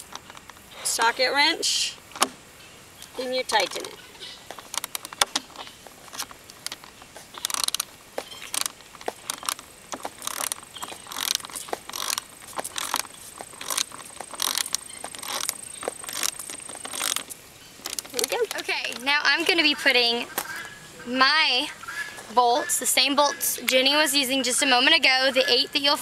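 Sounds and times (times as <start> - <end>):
ratchet wrench clicking: 7.4 - 9.6, 10.2 - 17.2.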